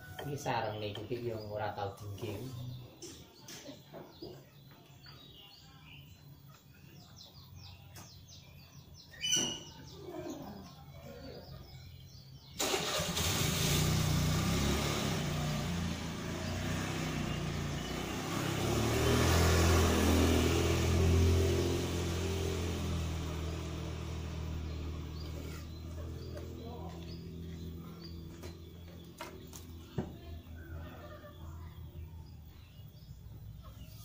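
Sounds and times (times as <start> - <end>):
faint bird chirps: 0.0 - 12.6.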